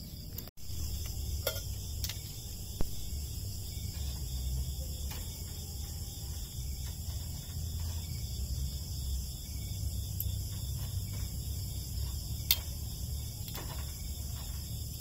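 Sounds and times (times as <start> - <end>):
crickets trilling: 0.0 - 15.0
low rumble: 0.6 - 13.4
tongs clicking on grill grate: 1.0 - 2.4, 12.1 - 12.8.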